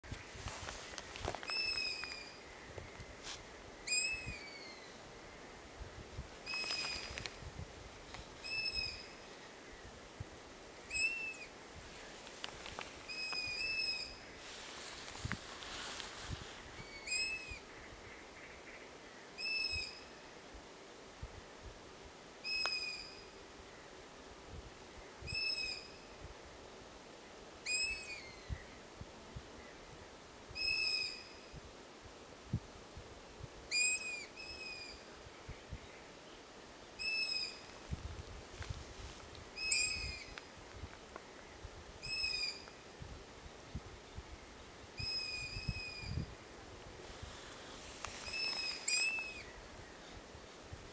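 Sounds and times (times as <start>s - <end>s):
owl chick begging call: 3.9s - 4.9s, 8.4s - 9.1s, 10.9s - 11.5s, 13.1s - 14.2s, 16.8s - 17.6s, 19.4s - 20.0s, 30.6s - 31.4s, 33.7s - 35.0s, 37.0s - 37.6s, 39.6s - 40.4s, 42.0s - 42.7s, 45.0s - 46.2s, 48.3s - 49.5s.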